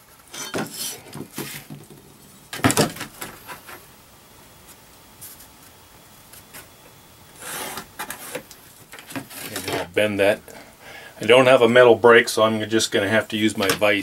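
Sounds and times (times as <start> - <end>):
scratching on metal sheet: 7.4 - 9.9.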